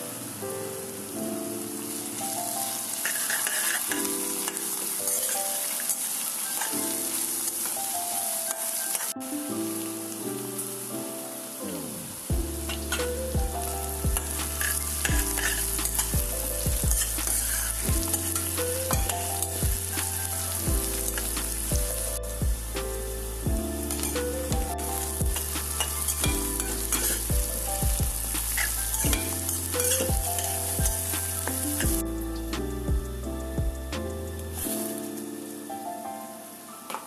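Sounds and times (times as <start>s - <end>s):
oil sizzling and spattering: 1.6s - 9.2s, 11.4s - 32.7s
background music with bass line: 12.3s - 34.7s.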